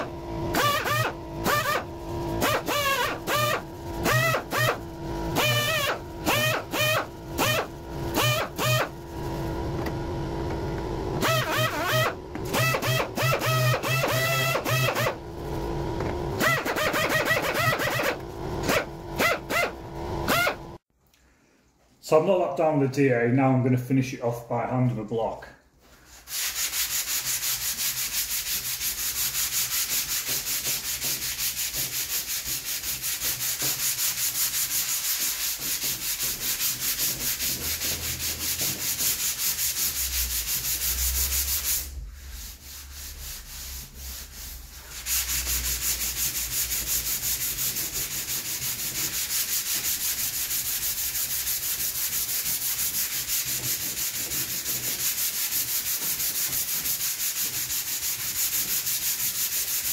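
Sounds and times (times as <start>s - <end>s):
sandpaper rubbing back and forth: 0.0s - 9.5s, 11.2s - 15.8s, 16.4s - 20.6s, 25.9s - 59.9s.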